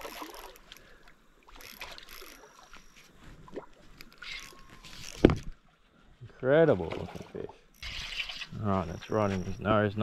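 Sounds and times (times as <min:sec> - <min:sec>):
fish splashing and thrashing in water: 0:00.0 - 0:05.6.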